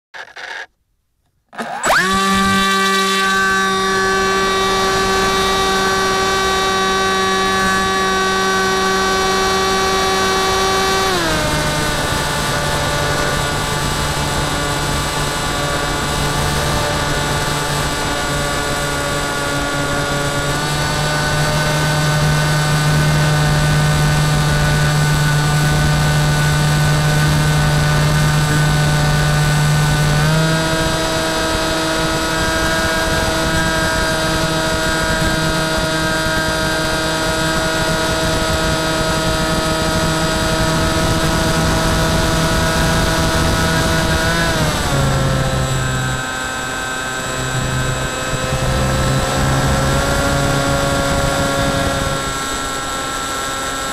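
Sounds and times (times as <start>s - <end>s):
electric motor and propeller whining: 0.2s - 0.7s, 1.5s - 53.9s.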